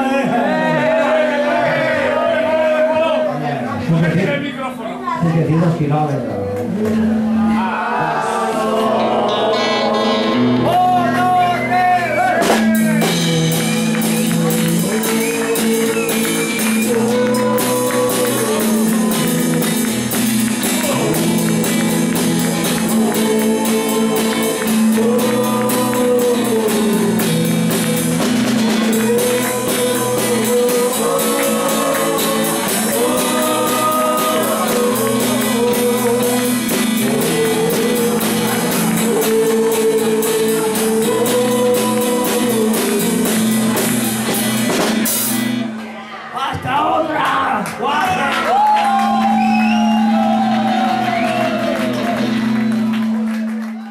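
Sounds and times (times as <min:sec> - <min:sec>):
person singing: 0:06.7 - 0:44.8
acoustic guitar strumming: 0:08.6 - 0:45.7
drums and cymbal: 0:12.4 - 0:45.6.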